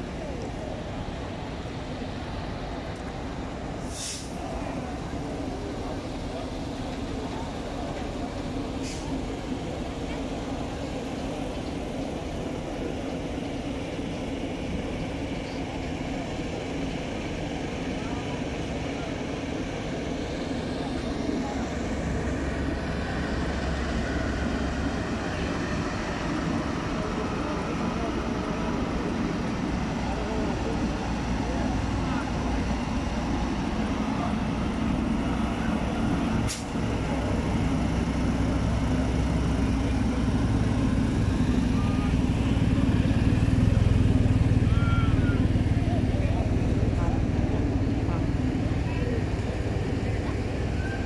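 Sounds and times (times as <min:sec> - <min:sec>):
sharp air hiss: 0:03.8 - 0:04.4
heavy truck passing: 0:18.1 - 0:51.0.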